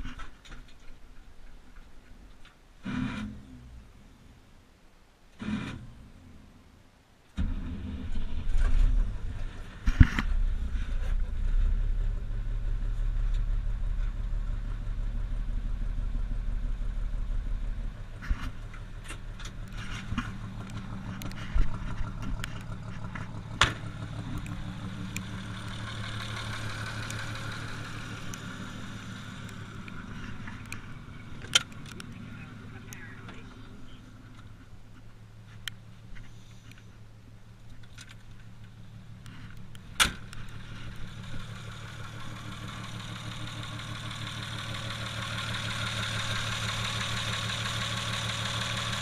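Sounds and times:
engine knocks: 7.4s - 34.8s, 39.3s - 49.0s
truck engine running: 7.4s - 49.0s.

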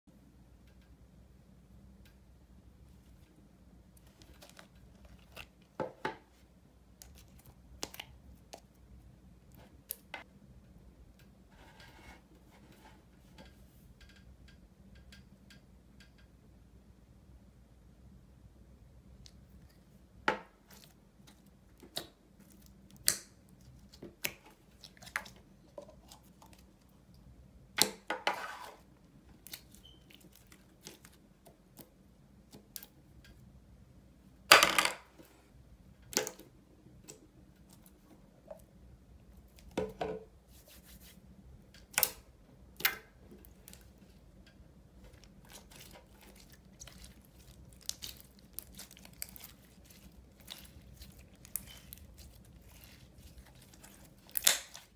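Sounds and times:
slime squished by hand: 45.0s - 54.9s
slime crackling bursts: 45.4s - 54.9s.

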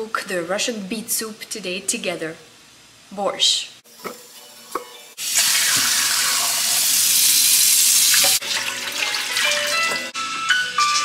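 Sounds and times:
background music melody: 8.4s - 11.0s.

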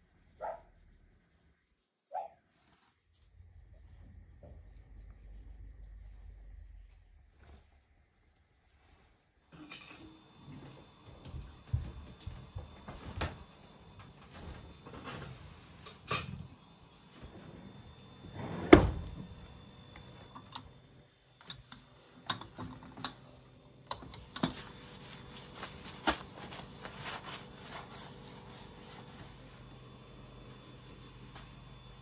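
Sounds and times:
cloth rubbing on surfaces: 24.5s - 31.8s.

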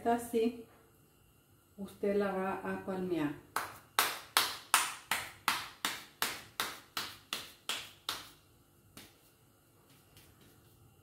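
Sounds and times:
hands slapping dough: 3.5s - 11.0s.

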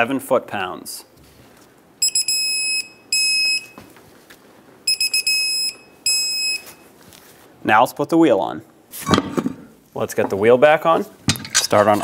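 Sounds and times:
torque wrench beeping: 2.0s - 3.8s, 4.9s - 6.8s.

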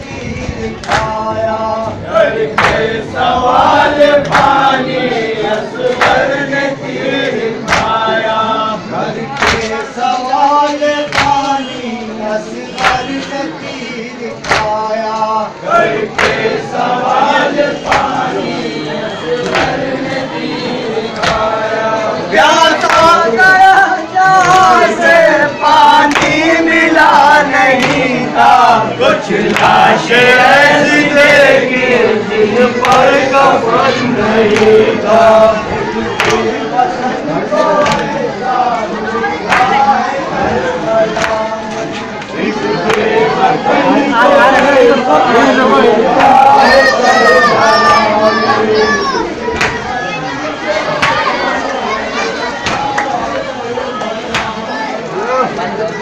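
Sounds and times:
men chanting together: 0.0s - 55.7s
hands slapping on chests: 0.8s - 1.2s, 2.5s - 2.9s, 5.9s - 6.3s, 7.6s - 8.0s, 9.3s - 9.8s, 11.1s - 11.5s, 12.8s - 13.3s, 14.4s - 14.8s, 16.1s - 16.5s, 17.8s - 18.2s, 21.2s - 21.5s, 22.8s - 23.2s, 26.0s - 26.4s, 27.7s - 28.1s, 29.4s - 29.8s, 32.8s - 33.2s, 34.5s - 34.8s, 36.2s - 36.5s, 37.8s - 38.2s, 39.5s - 39.8s, 41.2s - 43.1s, 49.5s - 49.9s, 51.0s - 51.3s, 52.6s - 53.1s, 54.3s - 54.6s.

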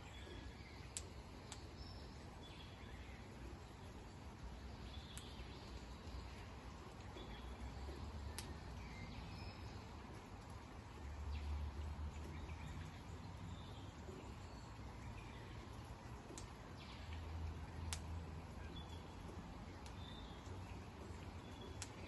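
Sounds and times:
sharp clicks: 0.9s - 1.7s, 5.1s - 5.4s, 8.3s - 8.6s, 17.9s - 18.1s.

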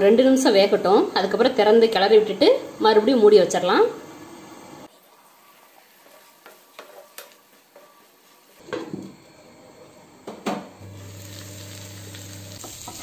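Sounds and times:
food sizzling in frying pan: 10.8s - 13.0s.

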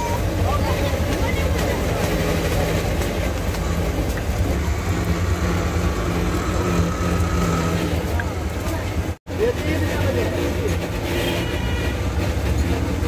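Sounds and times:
low engine drone: 0.0s - 9.4s.

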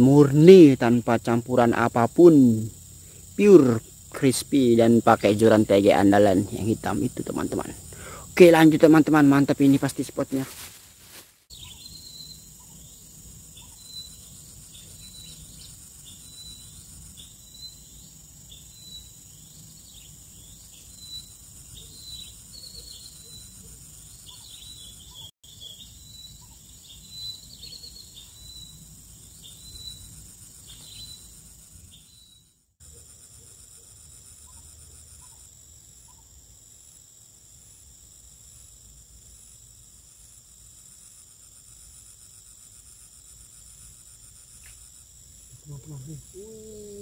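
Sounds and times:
high insect drone: 0.0s - 47.0s
birds chirping: 11.5s - 32.5s, 45.6s - 47.0s.

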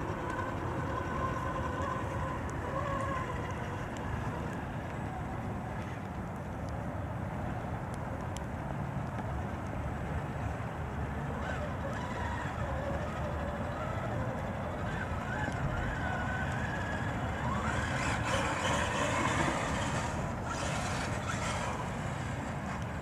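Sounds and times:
rc car motor whining: 0.0s - 4.6s, 11.4s - 23.0s
wind and moving water: 0.0s - 23.0s.

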